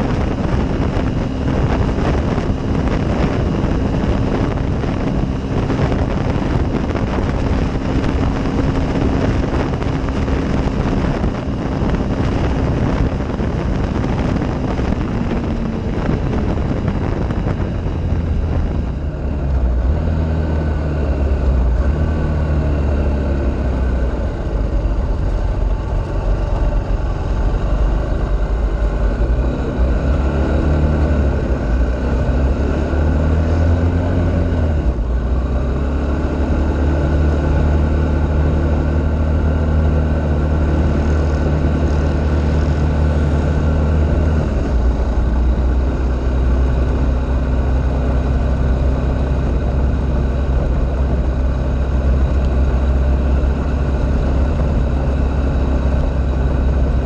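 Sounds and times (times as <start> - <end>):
off-road vehicle engine running: 0.0 - 57.0.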